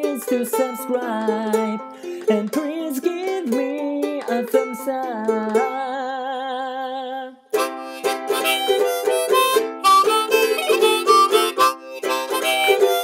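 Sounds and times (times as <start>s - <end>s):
man singing: 0.0s - 7.5s
ukulele strumming: 0.0s - 13.0s.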